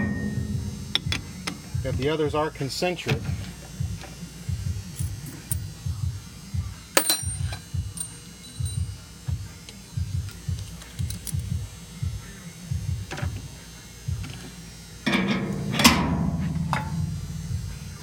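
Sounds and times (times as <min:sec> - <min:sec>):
uneven low thumps: 0:00.0 - 0:02.5.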